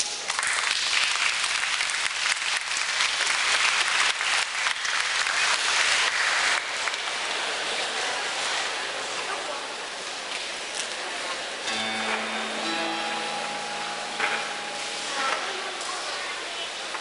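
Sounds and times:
audience applauding: 0.2s - 7.2s.

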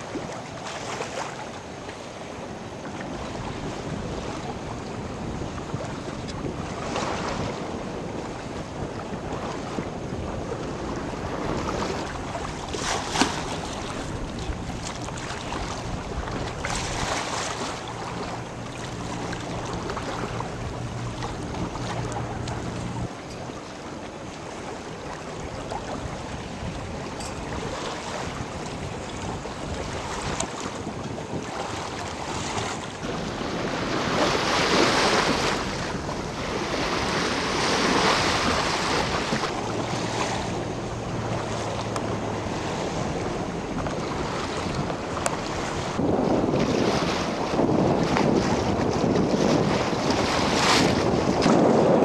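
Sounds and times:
choppy river water: 0.0s - 52.0s
wind buffeting microphone: 0.0s - 52.0s
low steady hum: 13.4s - 24.6s.

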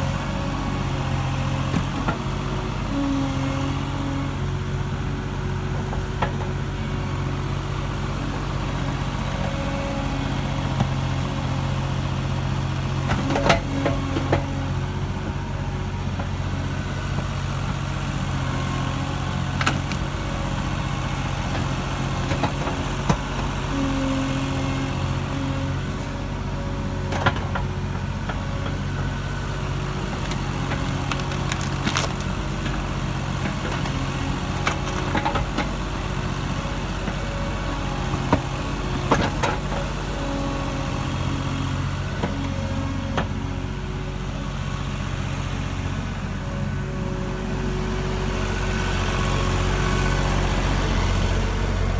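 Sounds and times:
diesel engine running: 0.0s - 51.9s.

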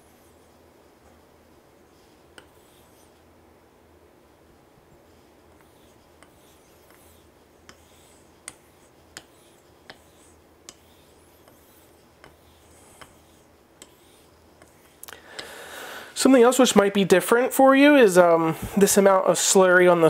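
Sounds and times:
razor wet strokes on whetstone: 0.0s - 3.3s, 4.9s - 15.1s.

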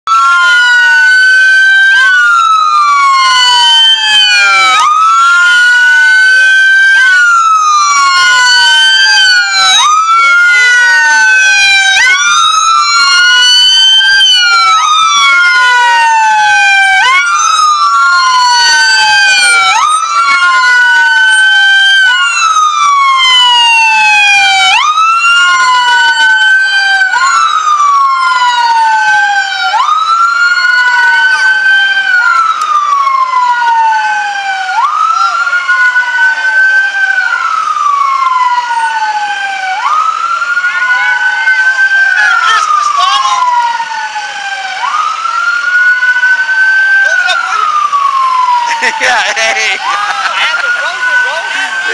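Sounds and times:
police sirens wailing: 0.0s - 51.9s.

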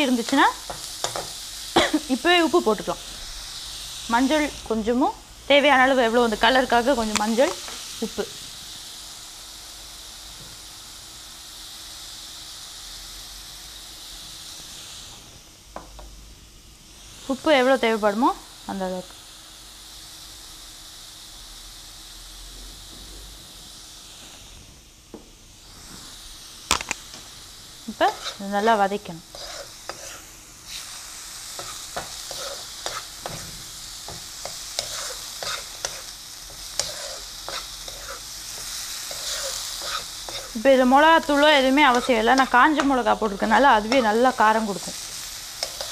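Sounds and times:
spices sizzling in oil: 0.0s - 45.9s
spatula scraping pan: 27.9s - 28.6s, 29.3s - 30.9s, 31.5s - 45.9s.

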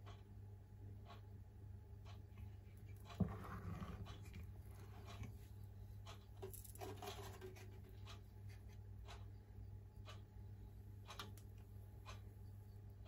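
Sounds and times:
low steady hum: 0.0s - 13.0s
spatula stirring thick batter: 2.8s - 5.4s.

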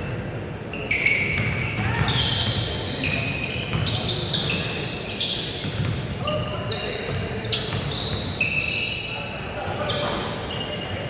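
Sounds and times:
sneaker squeaks: 0.0s - 11.0s
basketball bouncing: 1.4s - 2.7s.

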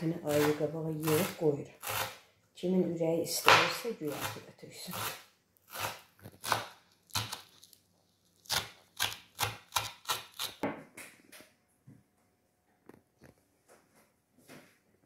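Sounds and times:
knife chopping on wooden board: 3.4s - 7.5s.

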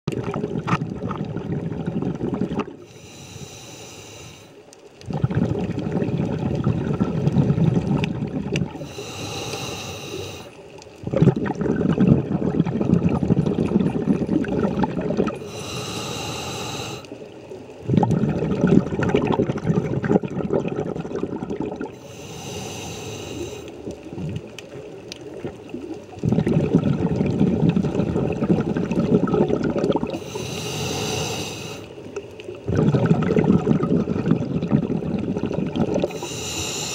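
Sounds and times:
exhaled air bubbling: 0.1s - 36.9s
regulator air hiss: 2.9s - 4.6s, 8.8s - 10.6s, 15.4s - 17.1s, 22.0s - 23.7s, 30.2s - 31.9s, 36.1s - 36.9s.

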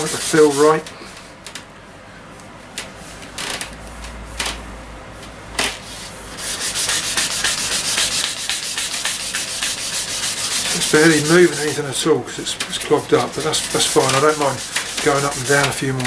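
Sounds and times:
sandpaper rubbing on wood: 0.0s - 0.8s, 5.8s - 16.0s.

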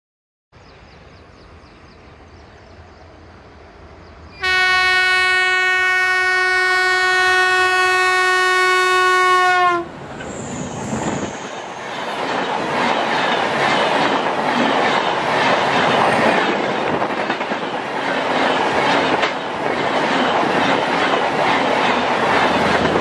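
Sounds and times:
locomotive horn blast: 4.4s - 9.9s
train wheels clattering on rails: 10.0s - 23.0s.

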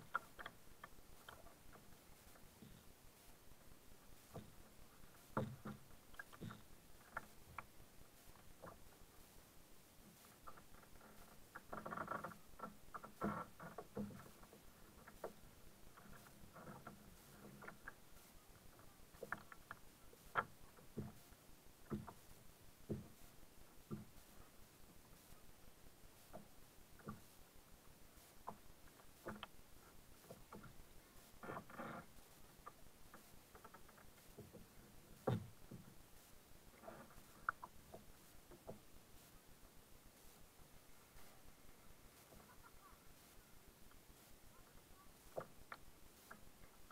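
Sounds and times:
paddle knocking on a kayak: 5.3s - 7.3s, 21.8s - 22.2s, 32.6s - 36.0s.

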